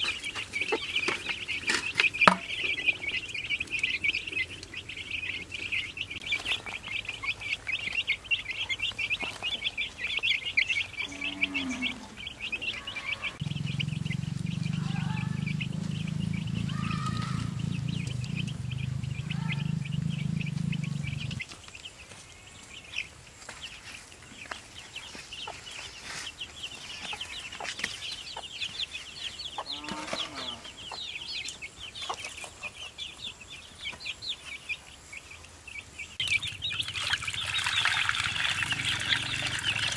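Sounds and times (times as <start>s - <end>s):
hen clucking: 0.0s - 21.4s
chicks peeping: 0.0s - 39.9s
low rumble: 13.3s - 21.4s.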